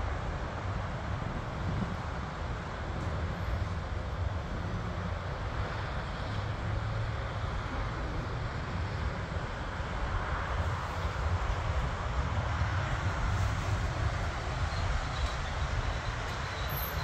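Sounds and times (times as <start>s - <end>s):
distant jet engine roar: 0.0s - 17.0s.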